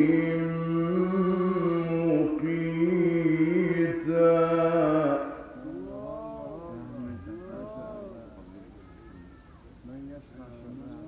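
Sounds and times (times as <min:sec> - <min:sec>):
man chanting recitation: 0:00.0 - 0:08.8.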